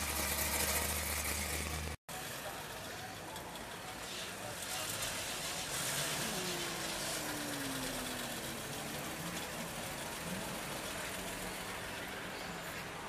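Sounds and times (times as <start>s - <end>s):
cars idling: 0.0s - 13.0s
car engine rolling past: 3.4s - 12.8s.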